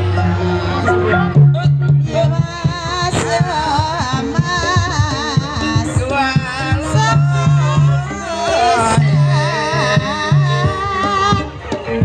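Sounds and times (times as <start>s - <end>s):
sustained low tones: 0.0s - 3.1s
person singing with vibrato: 0.0s - 11.7s
hand-drum strokes: 0.0s - 12.0s.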